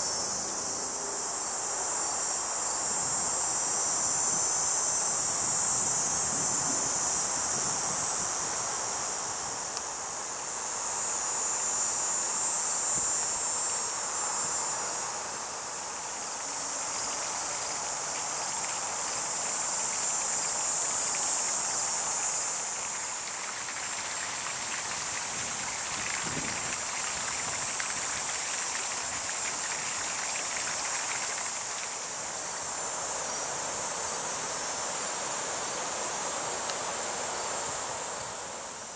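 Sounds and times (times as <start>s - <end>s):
insects buzzing: 0.0s - 38.9s
soft steady hiss: 0.0s - 38.9s.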